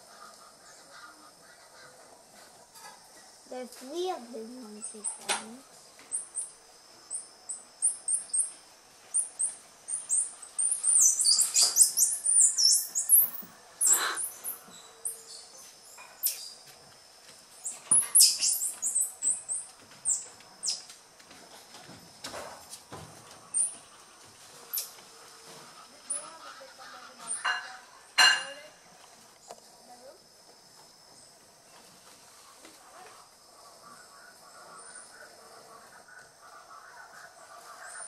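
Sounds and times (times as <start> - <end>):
monkeys peeping and chirping: 7.1 - 16.6, 17.6 - 20.9.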